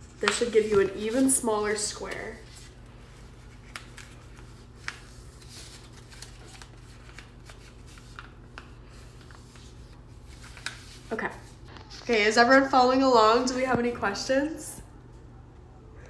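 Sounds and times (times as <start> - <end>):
paper rustling: 0.2 - 12.1.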